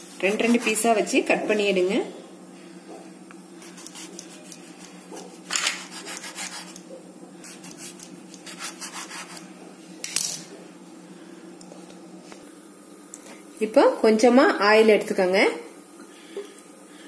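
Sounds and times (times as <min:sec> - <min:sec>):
knife sawing through bread: 0:00.2 - 0:00.9, 0:03.6 - 0:05.1, 0:05.8 - 0:06.8, 0:07.5 - 0:09.4.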